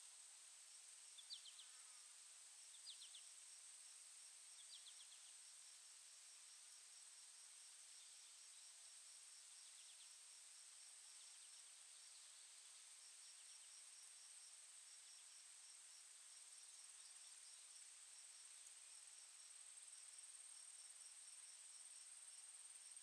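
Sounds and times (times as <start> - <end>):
cricket chirping: 0.0 - 23.0
insect drone: 0.0 - 23.0.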